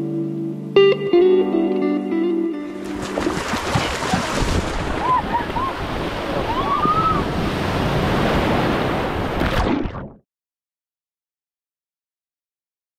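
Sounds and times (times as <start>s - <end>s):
wind buffeting microphone: 2.8s - 9.4s
sea waves breaking on shore: 2.8s - 10.0s.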